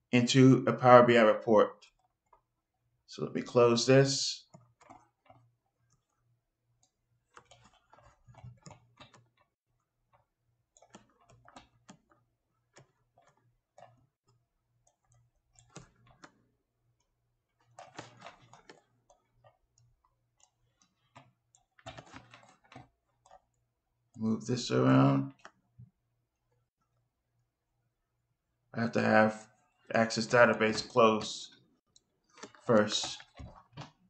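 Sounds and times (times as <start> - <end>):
mouse and keyboard clicks: 4.4 - 6.2, 7.3 - 9.5, 10.1 - 16.4, 17.0 - 23.5.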